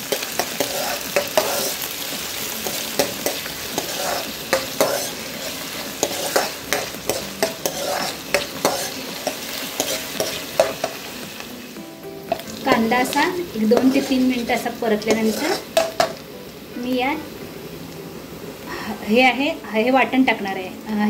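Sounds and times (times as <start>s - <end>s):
spatula scraping and tapping pan: 0.0s - 11.1s, 12.3s - 16.2s
onions sizzling in hot oil: 0.0s - 21.0s.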